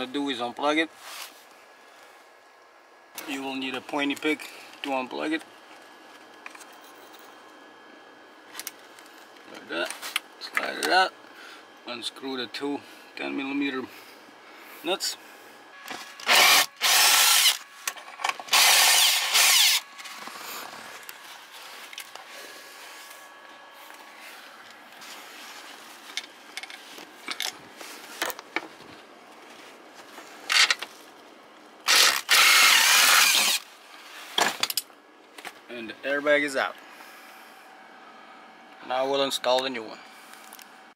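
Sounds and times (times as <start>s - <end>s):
cordless drill running in bursts: 16.2s - 17.7s, 18.5s - 19.9s, 31.8s - 33.6s.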